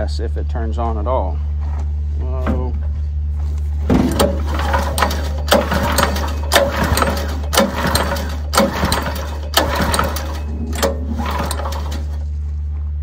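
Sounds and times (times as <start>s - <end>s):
water pump humming: 2.5s - 12.6s
pump clatter: 3.8s - 12.3s.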